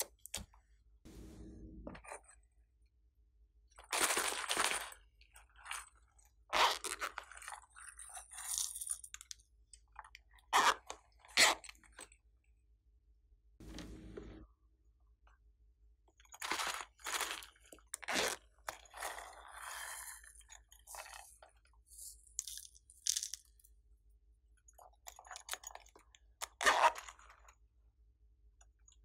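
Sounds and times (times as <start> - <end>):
crunching and rustling of slime toys: 3.8 - 12.3, 16.1 - 23.9.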